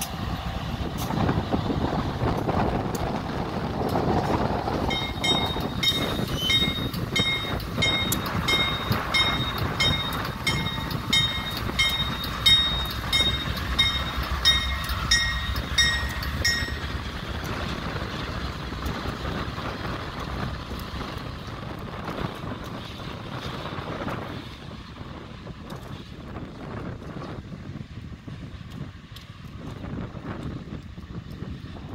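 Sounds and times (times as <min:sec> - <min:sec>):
diesel locomotives rumbling: 0:00.0 - 0:31.9
warning bell ringing: 0:04.9 - 0:17.0.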